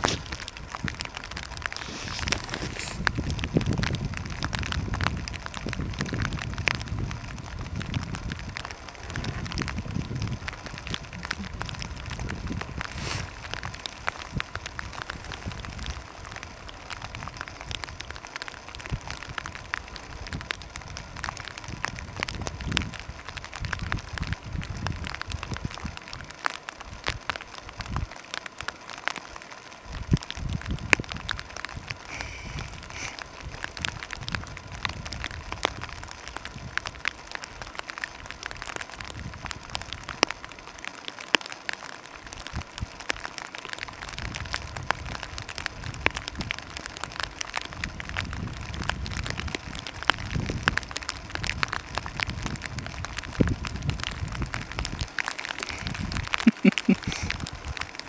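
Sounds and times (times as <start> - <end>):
wind rumble on microphone: 0.0 - 28.2, 29.8 - 40.7, 42.1 - 58.0
light rain pattering: 0.0 - 58.0.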